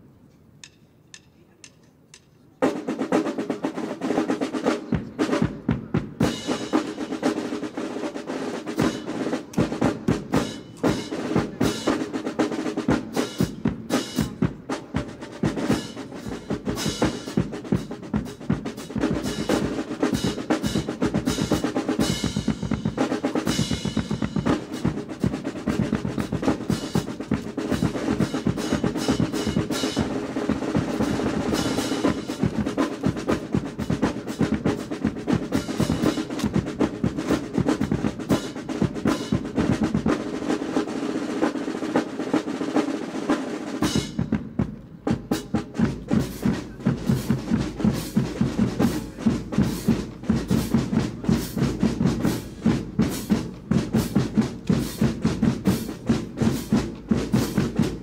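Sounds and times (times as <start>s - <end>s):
faint clicks: 0.2s - 2.5s
marching snare and bass drums: 0.6s - 58.0s.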